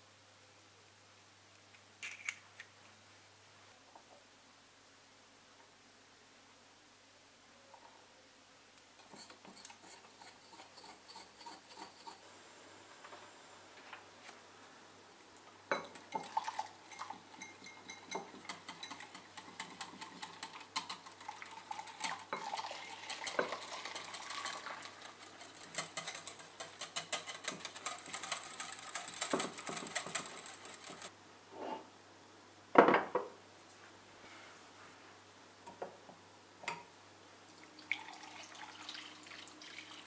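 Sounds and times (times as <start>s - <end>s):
whisk clinking against glass bowl: 15.7s - 31.1s.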